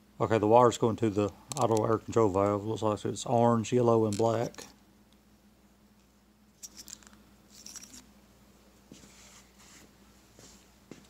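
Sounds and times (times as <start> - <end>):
faint steady hum: 0.0 - 11.0
hands rustling wiring: 6.6 - 8.1.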